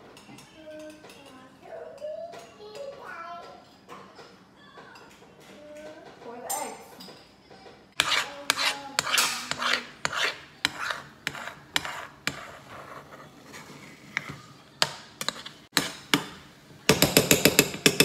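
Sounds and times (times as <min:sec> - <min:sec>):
metal spatula scraping frying pan: 0:08.0 - 0:14.4, 0:15.2 - 0:16.2.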